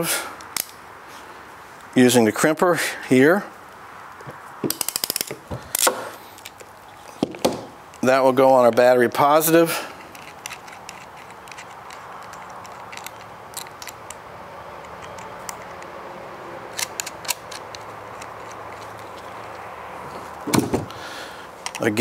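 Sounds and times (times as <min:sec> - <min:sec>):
small metallic clicks: 0:04.7 - 0:07.2, 0:10.0 - 0:14.2, 0:14.8 - 0:15.9, 0:16.7 - 0:19.6, 0:21.6 - 0:22.0.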